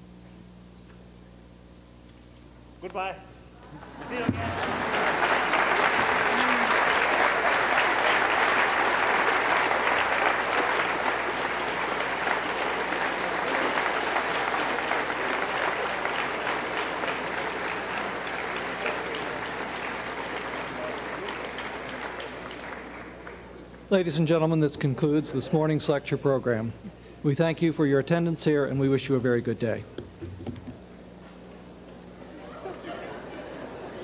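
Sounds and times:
audience applauding: 3.7 - 23.6.

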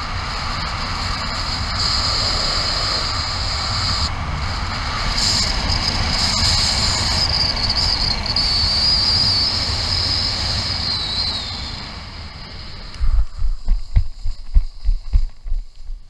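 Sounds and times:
wind rushing over microphone: 0.0 - 16.0
wavering high whistle: 5.3 - 13.6
feet thumping on grass: 13.0 - 16.0.

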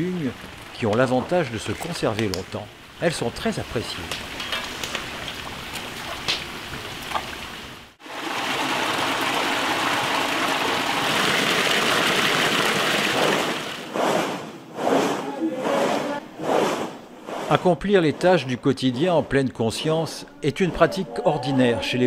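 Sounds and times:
water pouring into a basin: 8.0 - 13.8.

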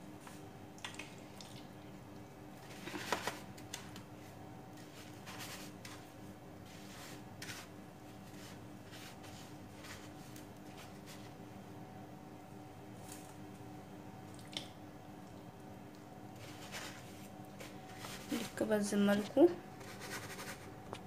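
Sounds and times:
chicken rolled in breadcrumbs: 2.6 - 11.4, 16.3 - 18.6.

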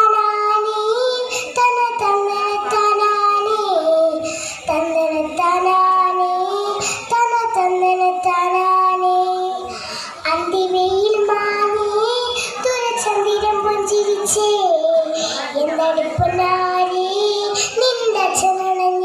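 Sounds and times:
girl singing into a microphone: 0.0 - 19.0
singer breathing: 4.2 - 4.7, 6.8 - 7.1, 9.6 - 10.3, 12.4 - 12.6, 15.1 - 15.6.

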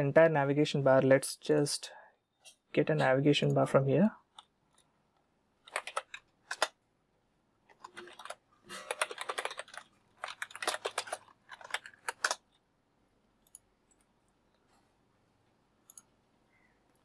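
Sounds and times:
keyboard typing: 5.6 - 6.8, 7.7 - 12.6, 15.8 - 16.1
faint mouse clicks: 15.8 - 17.0.

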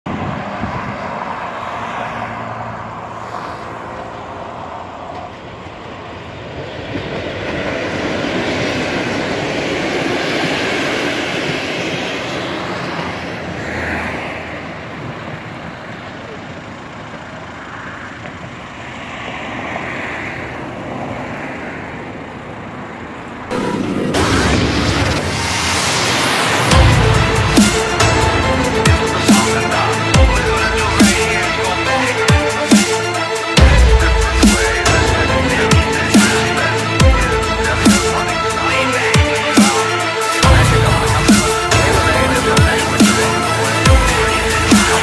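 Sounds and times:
road traffic: 0.0 - 45.0
passenger train passing: 0.1 - 45.0
coaches rumbling over rails: 2.9 - 45.0.

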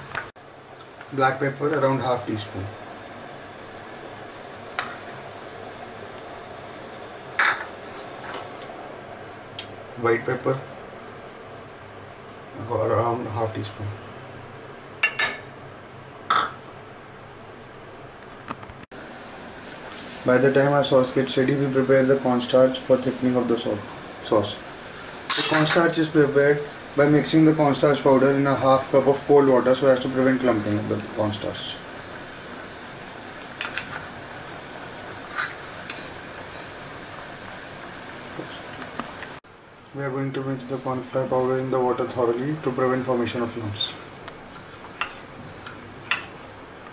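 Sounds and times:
sauce sizzling in a pan: 0.4 - 9.0, 18.9 - 39.4.

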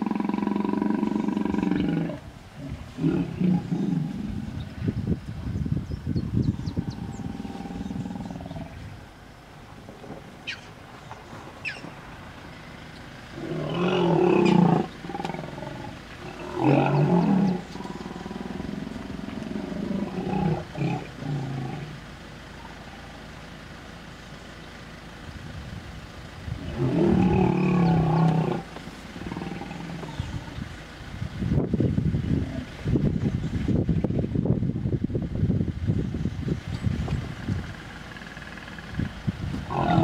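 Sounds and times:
hippos roaring: 0.0 - 4.7, 6.8 - 8.9, 13.4 - 22.0, 26.6 - 30.6, 39.6 - 40.0.

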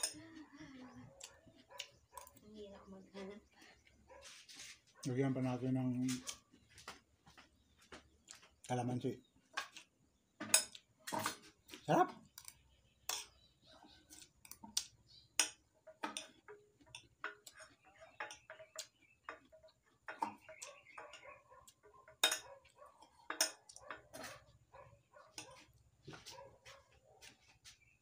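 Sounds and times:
chewing and mouth sounds: 0.0 - 2.4.

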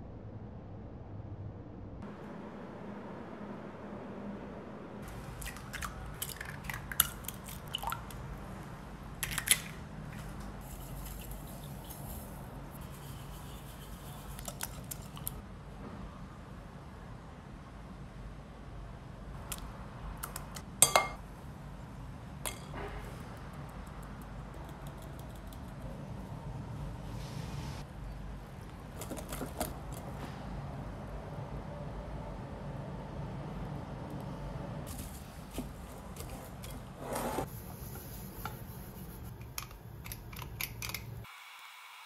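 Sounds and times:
sieve shaken sifting flour: 10.6 - 15.2
utensils clinking on glass bowl: 20.8 - 21.2.

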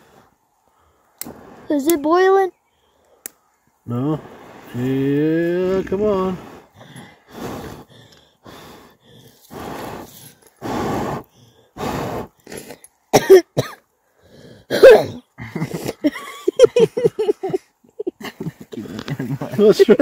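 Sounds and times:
short vocal bursts: 3.9 - 6.6
person blowing on fire: 6.3 - 12.7
person coughing loudly: 13.1 - 13.8, 14.7 - 16.1.

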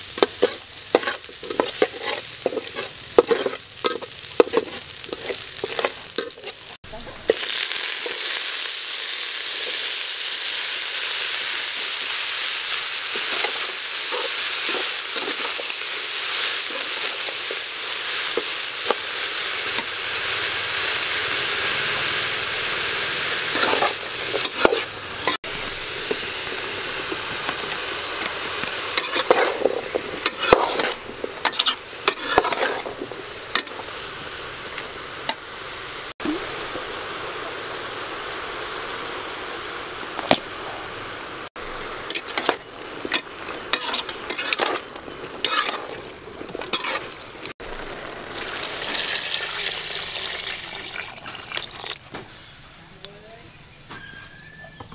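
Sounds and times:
vegetables sizzling in a pot: 0.0 - 54.9
metal ladle scraping a pot: 0.2 - 6.6, 23.5 - 24.9, 29.0 - 33.8, 42.1 - 47.5
water pouring into a pot: 47.6 - 52.1.

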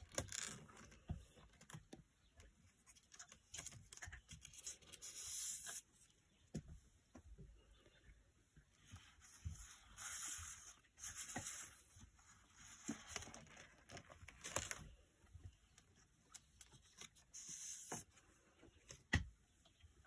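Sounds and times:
faint paper rustling: 2.4 - 6.2, 8.7 - 19.0
page turning: 12.6 - 15.0.

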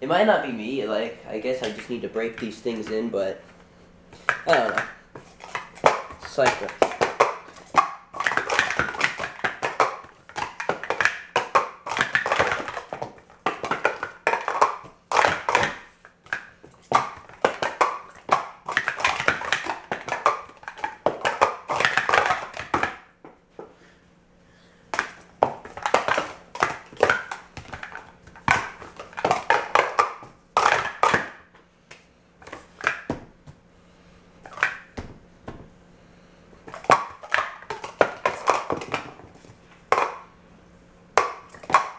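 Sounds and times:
plastic cups clattering: 1.4 - 3.2, 4.2 - 23.1, 24.9 - 31.5, 32.4 - 33.2, 34.5 - 35.1, 36.6 - 40.3, 41.2 - 41.9.

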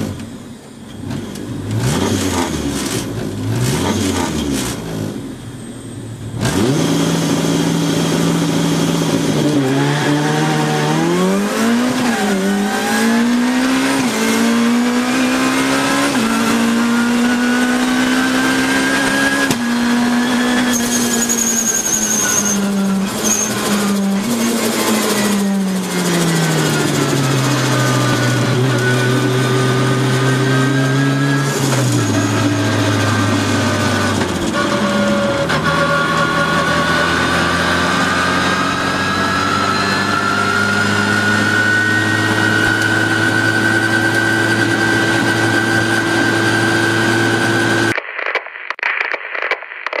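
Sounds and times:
high supercharger whine: 0.0 - 47.9
supercharged car engine revving: 0.0 - 47.9
crackly static noise: 47.9 - 50.0.

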